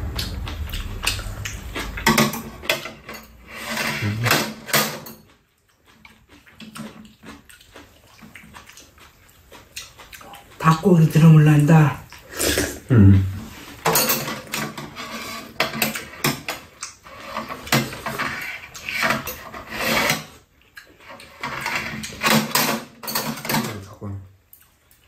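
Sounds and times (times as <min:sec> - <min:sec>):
utensils clinking on bowls: 0:01.8 - 0:05.3, 0:13.8 - 0:20.3, 0:21.0 - 0:23.9.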